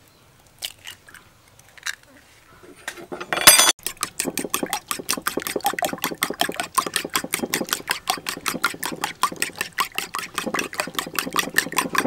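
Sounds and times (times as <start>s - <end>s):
fork beating eggs in bowl: 3.8s - 12.0s.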